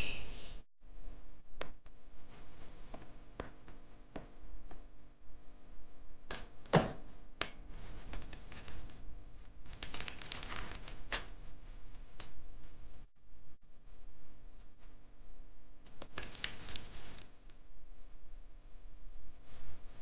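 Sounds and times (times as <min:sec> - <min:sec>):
paper rustling: 0:07.7 - 0:09.0, 0:09.7 - 0:11.4, 0:15.9 - 0:17.4.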